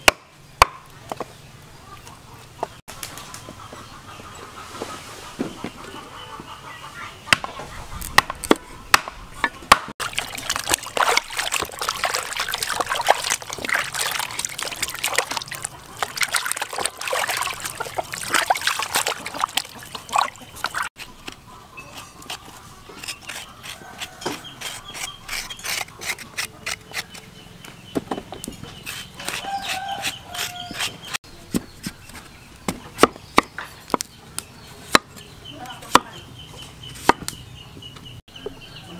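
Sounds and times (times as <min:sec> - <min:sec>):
cleaver striking chopping block: 0:08.1 - 0:09.9
knife scraping and slicing fruit: 0:20.9 - 0:27.3, 0:28.5 - 0:32.3.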